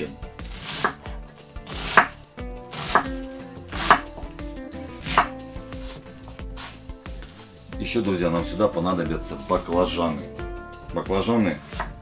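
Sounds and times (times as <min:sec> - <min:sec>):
knife chopping on cutting board: 0:00.4 - 0:04.3, 0:05.0 - 0:07.4, 0:11.6 - 0:12.0.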